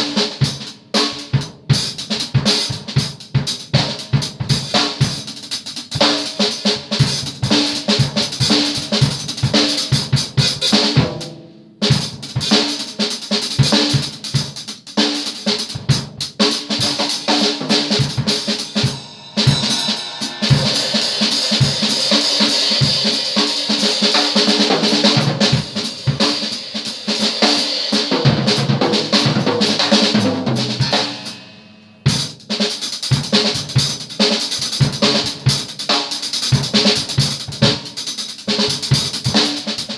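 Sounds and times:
drum kit played fast: 0:00.0 - 0:39.9
metallic cymbal wash: 0:16.8 - 0:28.1.

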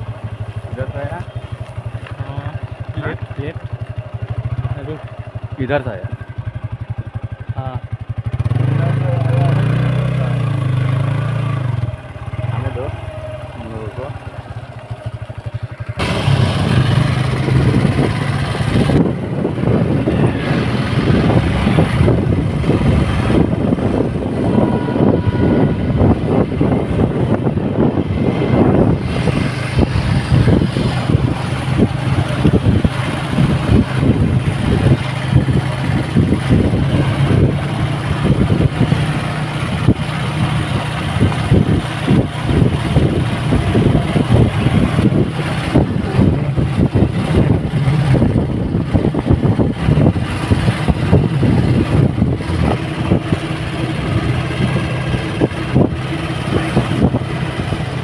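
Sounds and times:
motorcycle engine running: 0:00.0 - 0:58.0
wind buffeting microphone: 0:10.4 - 0:58.0.

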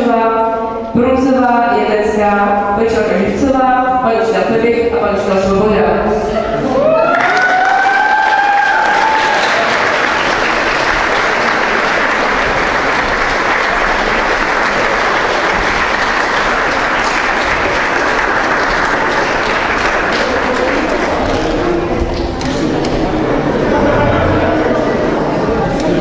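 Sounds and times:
audience applauding: 0:06.9 - 0:22.9.

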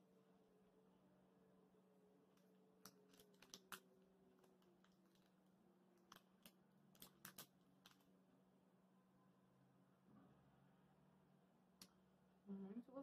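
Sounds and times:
faint steady hum: 0:00.0 - 0:13.0
wrapper crinkling: 0:02.8 - 0:05.4, 0:06.0 - 0:08.1.

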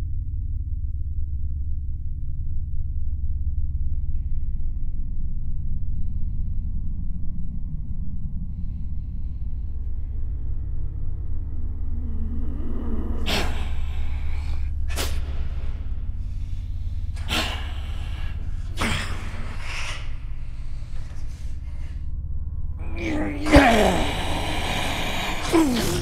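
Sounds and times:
deep rumbling drone: 0:00.0 - 0:26.0
man gasping harshly: 0:22.9 - 0:26.0.

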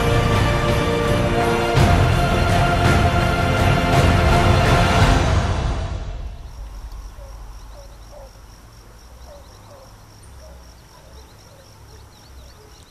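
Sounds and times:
birds chirping: 0:00.0 - 0:03.7, 0:06.2 - 0:12.9
low rumble: 0:00.0 - 0:09.2.

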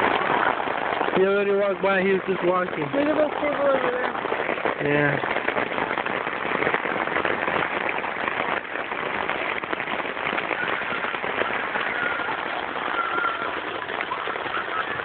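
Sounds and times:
rain pattering on tent fabric: 0:00.0 - 0:15.0.

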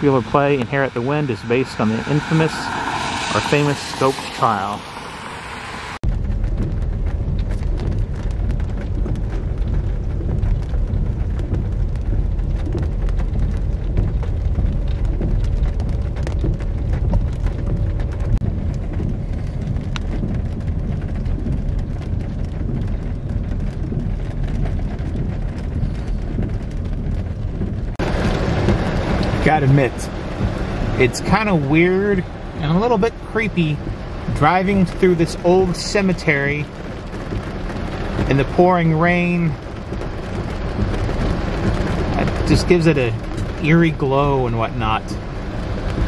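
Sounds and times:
car low rumble: 0:00.0 - 0:46.0
rain on car roof: 0:00.0 - 0:46.0.

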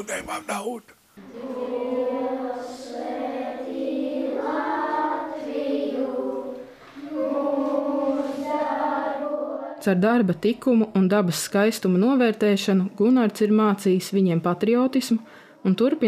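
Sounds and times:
children singing in unison: 0:01.2 - 0:09.8.

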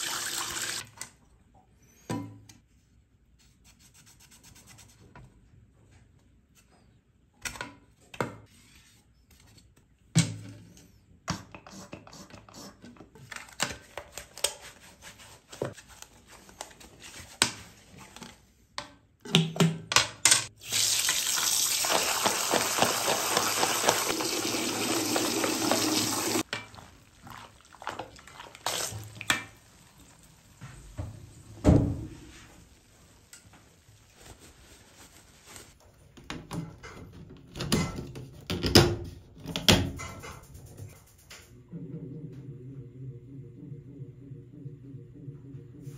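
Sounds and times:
water running from faucet: 0:00.0 - 0:00.8, 0:20.6 - 0:30.1.

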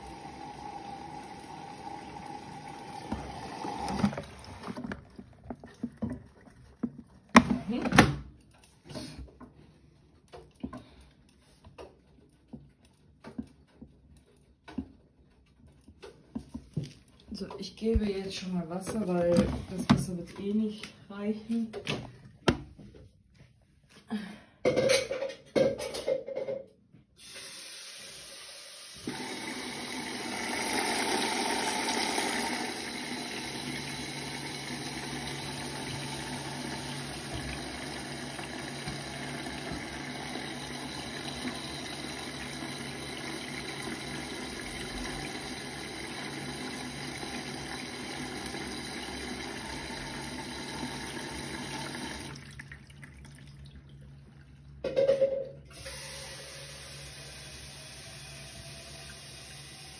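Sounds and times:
water rushing into washing machine: 0:00.0 - 0:08.2, 0:27.2 - 0:54.6, 0:55.7 - 0:59.9.

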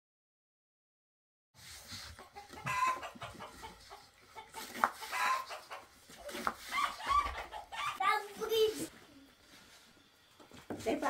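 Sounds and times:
hens clucking: 0:02.0 - 0:08.2.

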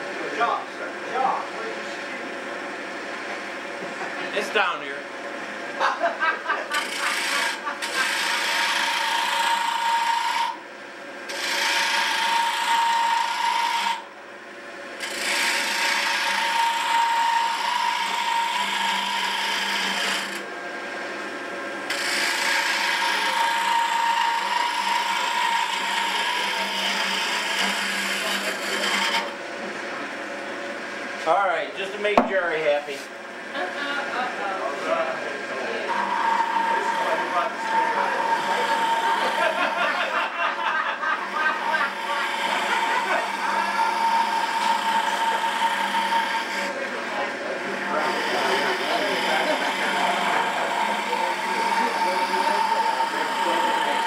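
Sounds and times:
hand tool rasping on wood: 0:06.7 - 0:10.6, 0:11.3 - 0:14.0, 0:15.0 - 0:20.4, 0:21.9 - 0:29.3, 0:35.9 - 0:40.2, 0:41.5 - 0:46.8, 0:48.0 - 0:54.0.

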